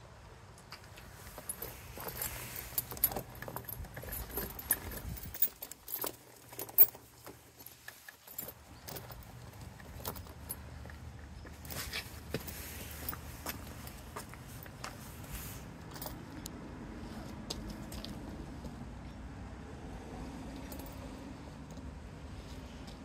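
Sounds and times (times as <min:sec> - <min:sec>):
tire chain links clinking: 0:00.8 - 0:16.5, 0:20.6 - 0:21.8.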